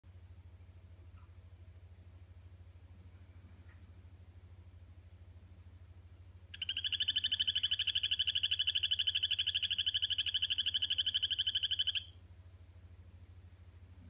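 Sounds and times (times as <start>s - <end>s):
frog trilling call: 6.6s - 12.2s.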